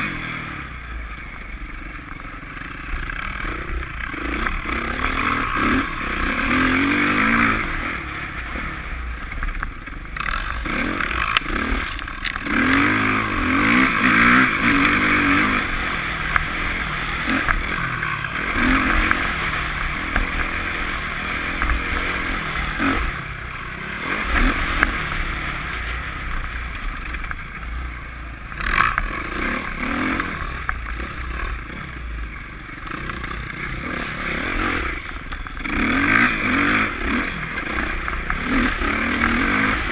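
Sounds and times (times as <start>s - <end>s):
dirt bike engine revving: 0.0s - 39.9s
steady rushing noise: 0.0s - 39.9s.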